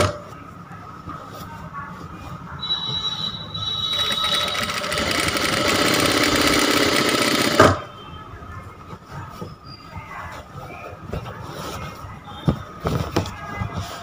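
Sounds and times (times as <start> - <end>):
sewing machine stitching: 3.6 - 7.8.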